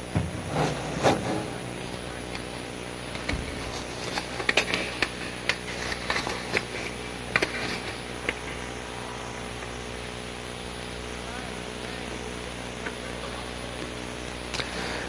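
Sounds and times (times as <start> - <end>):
recording hum: 0.0 - 15.0.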